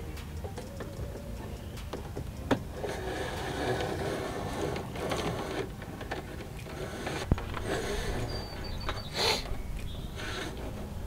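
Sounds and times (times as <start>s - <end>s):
cable scraping through plastic trim: 2.8s - 9.5s.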